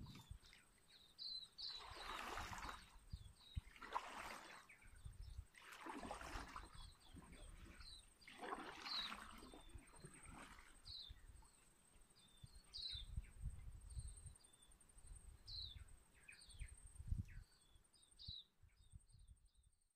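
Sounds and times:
kayak paddle in water: 0.0 - 13.8
small birds chirping: 0.0 - 19.6.

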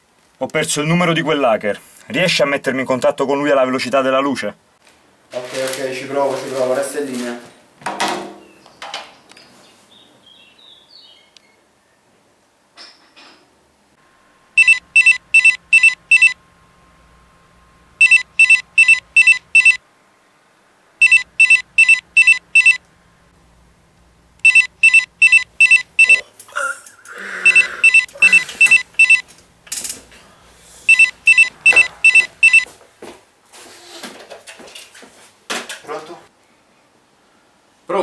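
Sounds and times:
rustling: 4.8 - 7.6
telephone ringing electronic trill: 14.6 - 16.4, 18.0 - 19.8, 21.0 - 22.8, 24.4 - 26.2, 27.4 - 29.2, 30.9 - 32.7.

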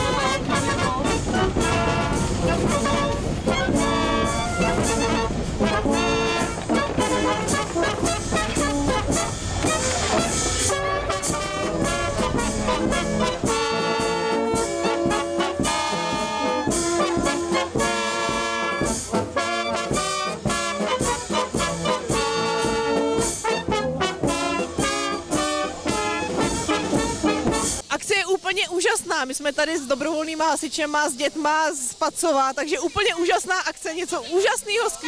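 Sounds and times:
brass band playing: 0.0 - 27.8.

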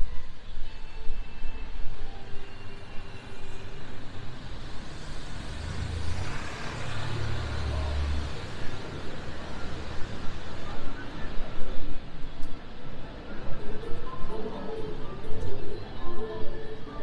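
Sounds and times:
city noise hiss: 0.0 - 17.0
vehicle engine passing: 5.2 - 8.8.

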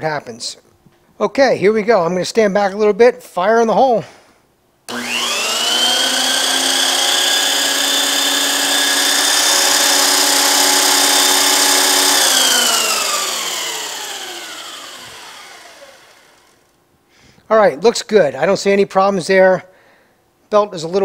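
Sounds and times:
thickness planer whining: 4.9 - 16.7.

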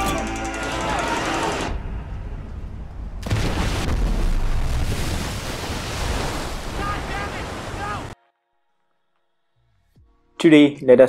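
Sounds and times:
water crashing: 3.2 - 8.2.

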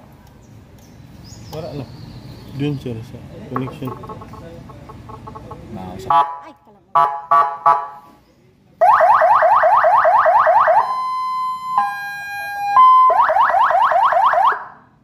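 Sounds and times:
fire truck siren yelp and tones: 8.8 - 14.8.

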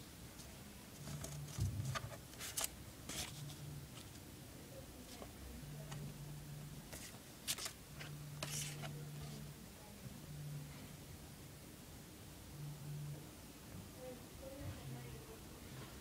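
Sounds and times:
paper stickers rustling and scraping: 0.9 - 4.2, 6.9 - 9.4.

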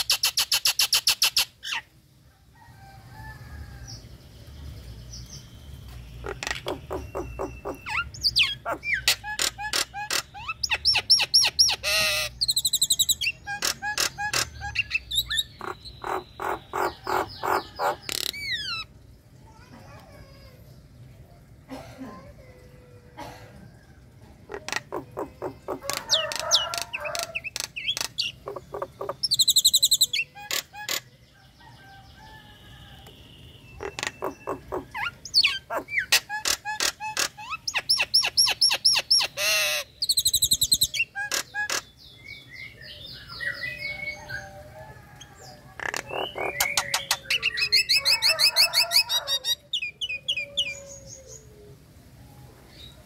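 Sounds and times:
myna chattering and singing: 6.2 - 12.0, 24.4 - 31.1, 33.8 - 38.3, 45.7 - 48.2.

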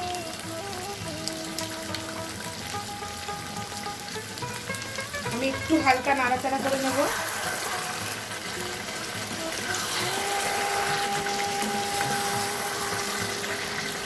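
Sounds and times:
food sizzling in a pan: 0.0 - 14.0.

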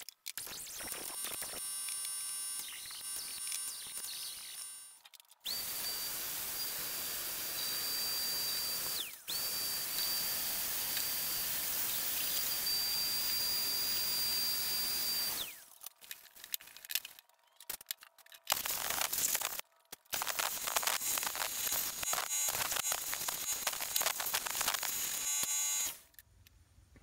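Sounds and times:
die grinder whining: 0.4 - 15.8, 20.2 - 26.1.

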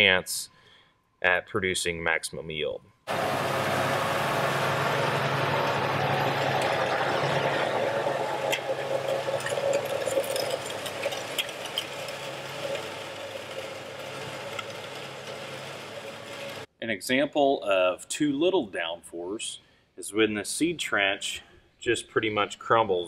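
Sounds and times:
planter rattling and clicking: 3.1 - 16.7
tractor engine running: 3.1 - 16.7.

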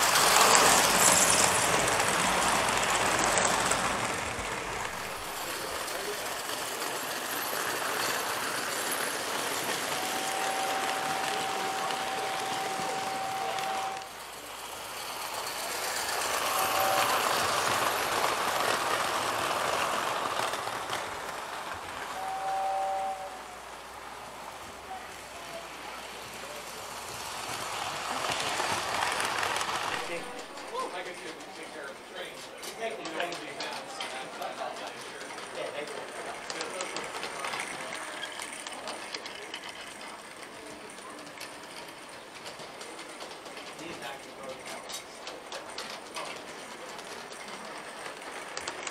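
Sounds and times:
model train running: 0.0 - 48.9
train whistle: 9.8 - 14.2, 16.4 - 17.8, 22.1 - 23.6.

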